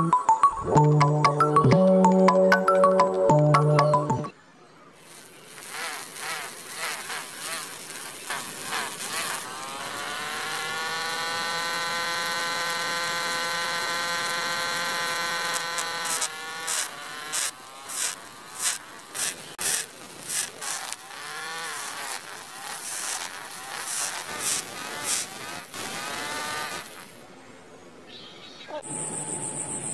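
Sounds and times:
small electric motor whirring: 0:05.0 - 0:27.2.

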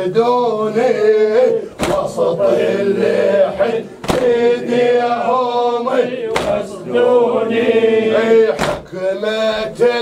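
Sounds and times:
man chanting a lament: 0:00.0 - 0:10.0.

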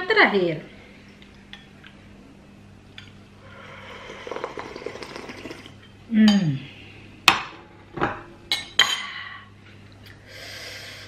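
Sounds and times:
slurping soup broth: 0:03.5 - 0:05.8.

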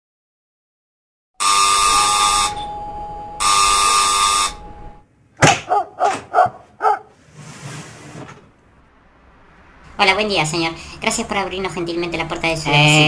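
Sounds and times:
doorbell buzzer: 0:01.4 - 0:05.0.

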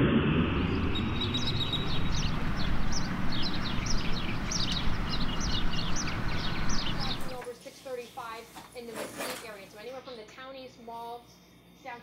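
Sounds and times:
aircraft whoosh: 0:00.0 - 0:07.4
steady low rumble: 0:00.0 - 0:07.4
small birds chirping: 0:00.6 - 0:08.9.

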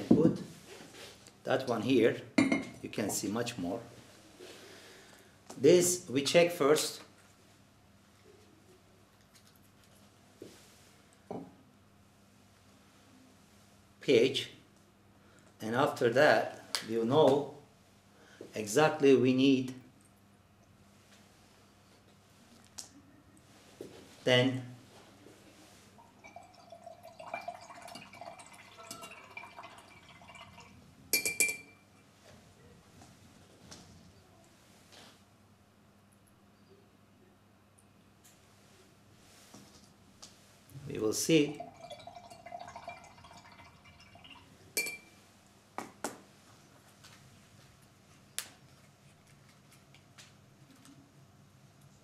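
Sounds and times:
stirring rod clinking on glass jar: 0:31.2 - 0:31.8, 0:41.7 - 0:45.1.

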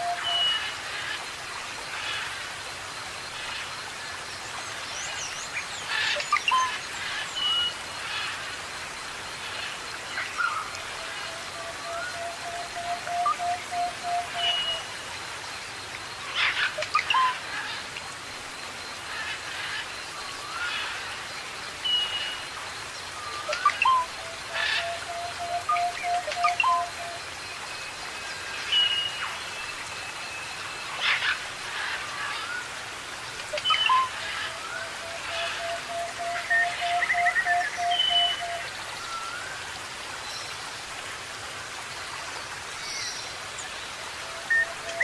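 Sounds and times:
water hiss: 0:00.0 - 0:45.0
birds whistling and chirping: 0:23.5 - 0:24.1, 0:24.8 - 0:27.2, 0:36.4 - 0:38.6.

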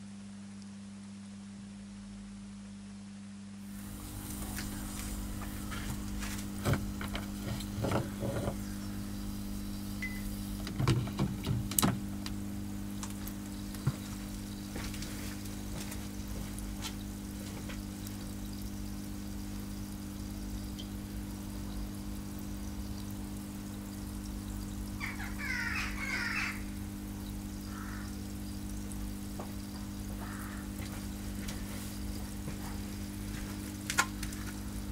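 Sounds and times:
low electrical hum: 0:00.0 - 0:34.9
water fizzing and bubbling: 0:03.7 - 0:34.9
sharp pops and crackles: 0:03.9 - 0:08.6, 0:09.5 - 0:21.4, 0:28.6 - 0:34.7.

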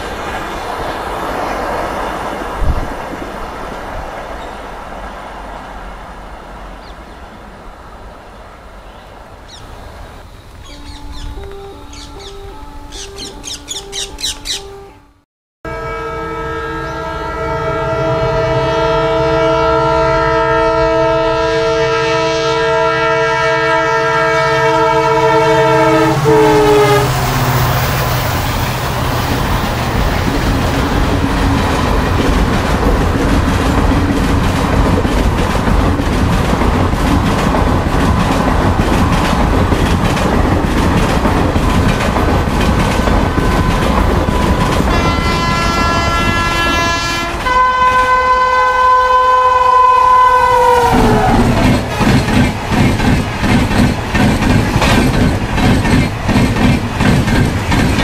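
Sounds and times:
train coaches rumbling: 0:00.0 - 0:15.1, 0:15.7 - 0:58.0
locomotive multi-tone horn: 0:10.7 - 0:29.0, 0:41.4 - 0:52.6
wheels clacking over rail joints: 0:27.1 - 0:48.1, 0:50.9 - 0:58.0.

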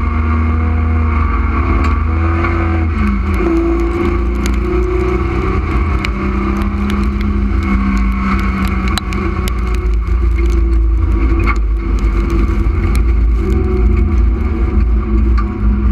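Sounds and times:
race car engine rumble: 0:00.0 - 0:15.9
clicks and rattles: 0:03.2 - 0:15.5.

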